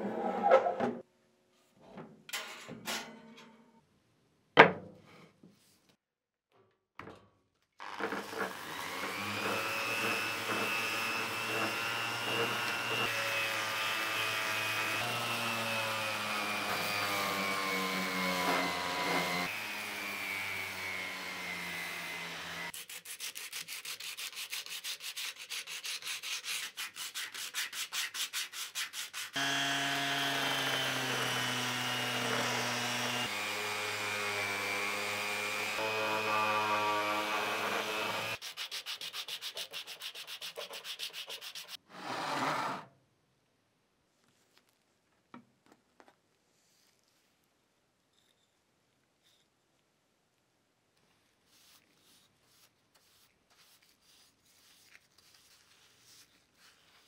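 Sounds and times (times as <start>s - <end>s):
electric sander running: 8.0s - 22.7s, 29.4s - 38.4s.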